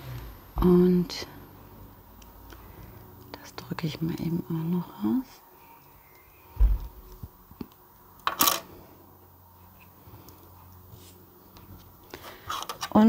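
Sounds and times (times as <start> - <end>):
dull bump: 6.6 - 7.1.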